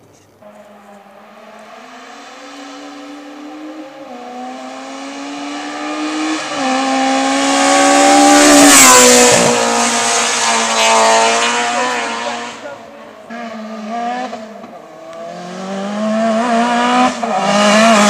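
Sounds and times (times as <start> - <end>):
race car engine at full throttle: 0.4 - 18.0.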